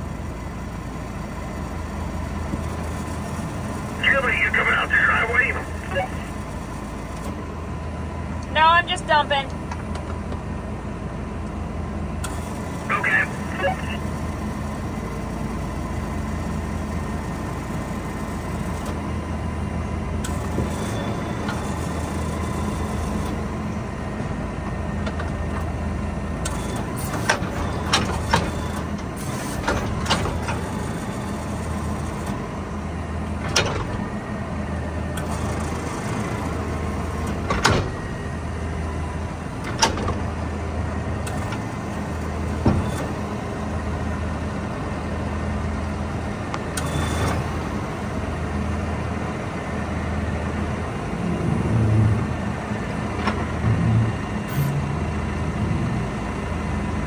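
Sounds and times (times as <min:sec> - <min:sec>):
tractor engine droning: 0:00.0 - 0:57.0.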